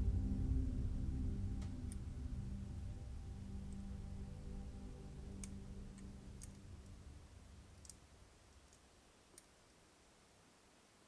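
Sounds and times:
background music: 0.0s - 8.2s
tweezers clicking on plastic parts: 5.3s - 7.0s, 7.8s - 8.0s.

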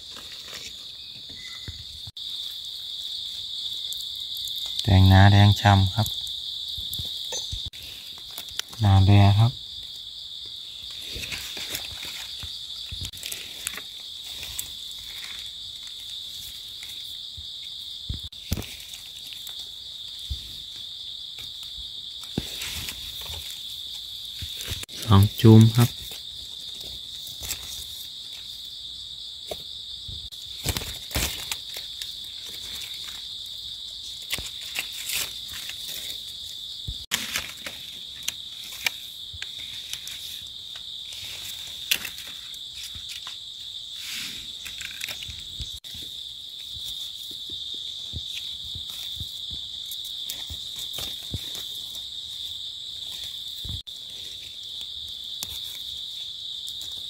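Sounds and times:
insects buzzing: 0.0s - 57.0s
crackles and clicks: 3.6s - 17.2s, 18.0s - 20.8s, 34.0s - 43.4s, 44.2s - 46.1s.

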